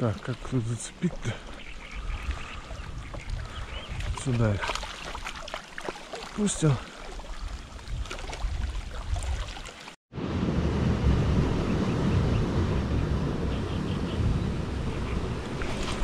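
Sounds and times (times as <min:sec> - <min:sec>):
steady low rushing noise: 0:10.2 - 0:15.6.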